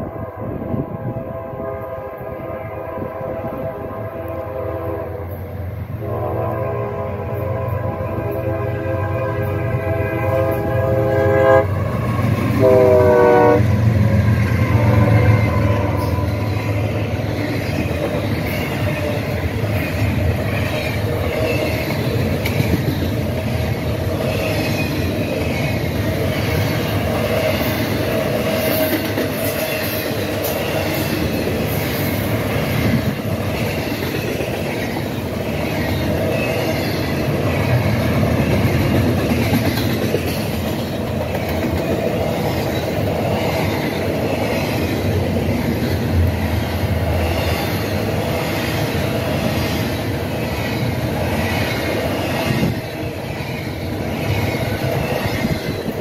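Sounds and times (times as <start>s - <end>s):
train horn blast: 0.0s - 17.1s
train rumbling past: 0.0s - 56.0s
wheels clattering on rail joints: 15.4s - 56.0s.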